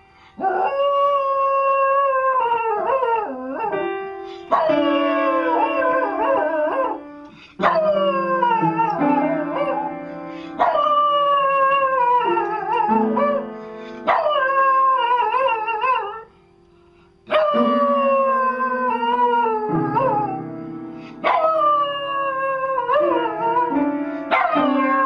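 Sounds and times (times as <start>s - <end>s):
piano notes: 0.6s - 25.0s
dog howling: 4.5s - 7.0s, 7.6s - 10.0s, 17.3s - 20.5s, 21.2s - 25.0s.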